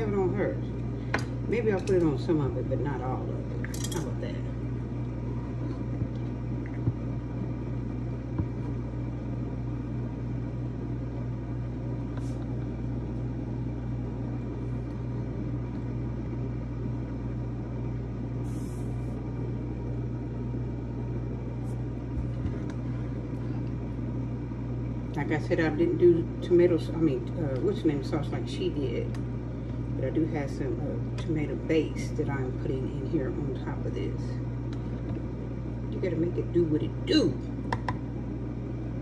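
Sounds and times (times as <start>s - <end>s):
low machine hum: 0.0s - 39.0s.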